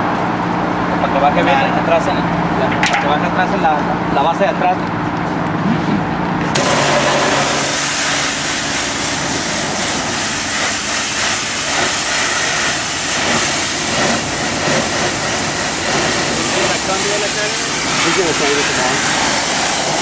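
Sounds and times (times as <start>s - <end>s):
pressure washer spraying metal: 6.6s - 20.0s.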